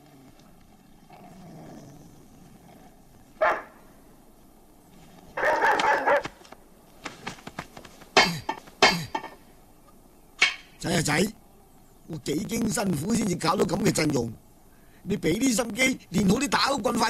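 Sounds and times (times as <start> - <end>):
dog barking: 3.4 - 3.8, 5.4 - 6.4.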